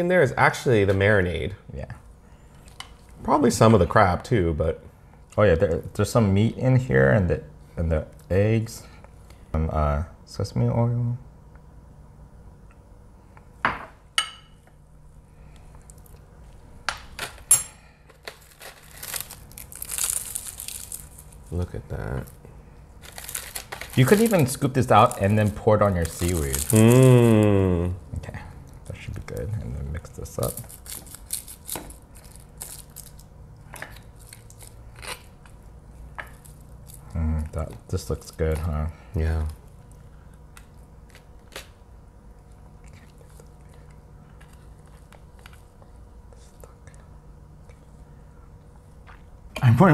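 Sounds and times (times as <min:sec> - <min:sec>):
plastic packet crinkling: 0:18.2 - 0:22.4, 0:23.0 - 0:27.4, 0:30.2 - 0:33.3.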